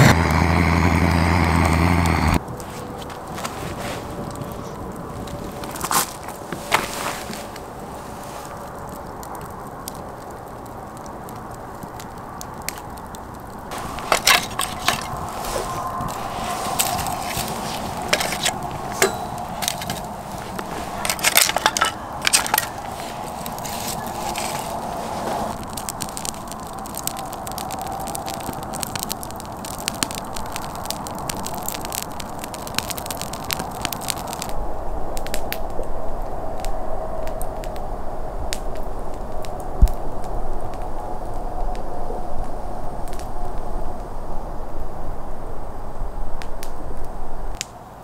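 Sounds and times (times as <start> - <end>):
sharp pops of fire: 0.0 - 2.6, 3.2 - 37.8
wood fire crackling and hissing: 0.0 - 48.0
low rumble: 13.7 - 28.8.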